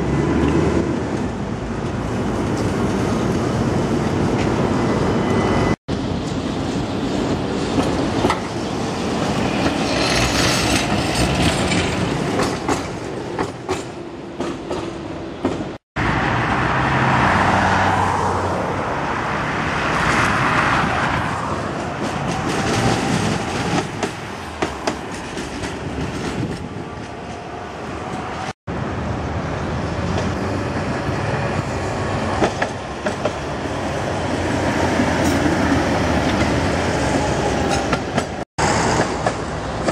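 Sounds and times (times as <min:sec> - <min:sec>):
city traffic: 0:00.0 - 0:39.9
trams running past: 0:00.0 - 0:39.9
wheels clicking over rail joints: 0:07.3 - 0:15.8, 0:37.6 - 0:39.9.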